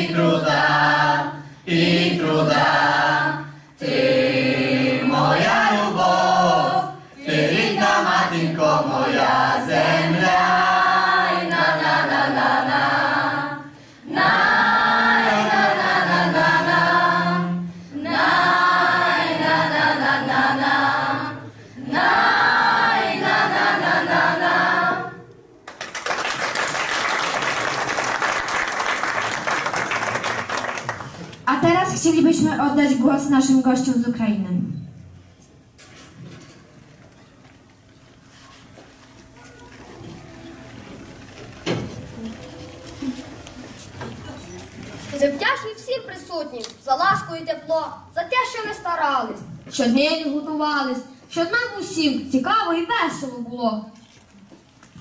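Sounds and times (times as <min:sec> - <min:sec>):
choir singing a cappella: 0:00.0 - 0:25.4
audience applauding: 0:25.6 - 0:31.4.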